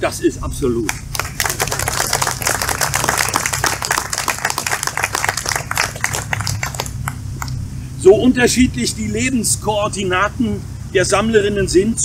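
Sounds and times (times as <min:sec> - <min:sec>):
audience applauding: 0:00.9 - 0:07.6.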